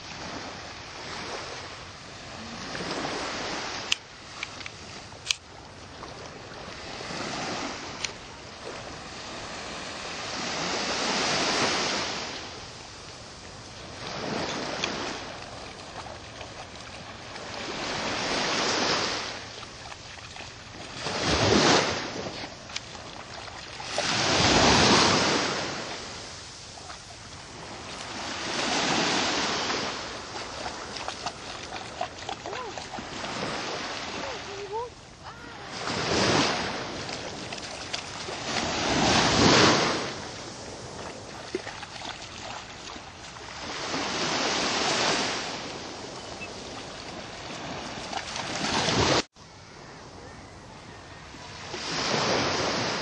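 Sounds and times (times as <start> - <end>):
small waves washing onto beach: 0.0 - 49.8, 51.2 - 53.0
wind on microphone: 20.3 - 53.0.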